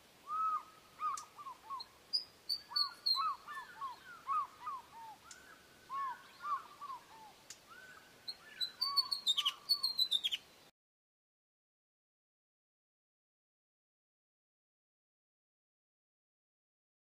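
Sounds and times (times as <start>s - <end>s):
osprey whistled calls: 0.2s - 10.4s.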